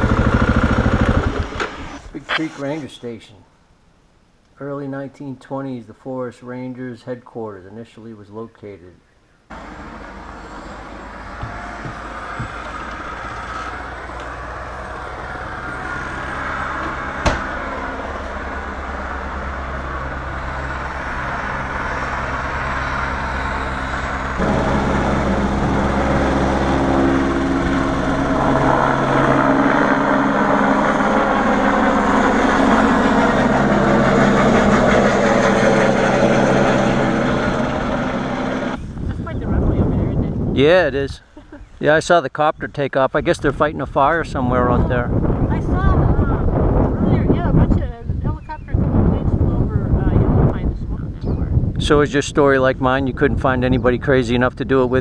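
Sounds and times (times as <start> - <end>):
helicopter rotor and engine drone: 0.0 - 2.8, 9.5 - 40.2, 44.5 - 52.2.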